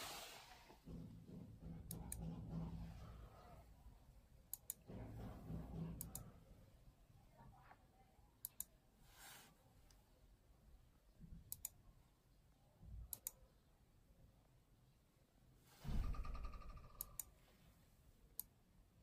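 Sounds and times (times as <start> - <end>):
brief hiss: 0.0 - 0.8.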